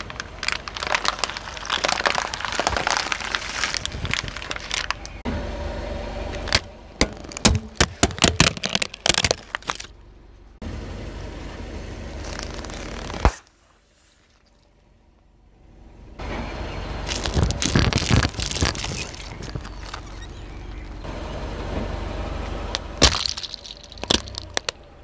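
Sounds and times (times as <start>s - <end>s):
plastic headphones cracking: 0.0s - 5.2s, 6.4s - 9.9s, 17.1s - 20.1s, 22.7s - 24.8s
squishy toys crunching and popping: 0.0s - 5.2s, 6.4s - 9.9s, 12.2s - 13.5s, 17.1s - 20.2s, 22.7s - 24.8s.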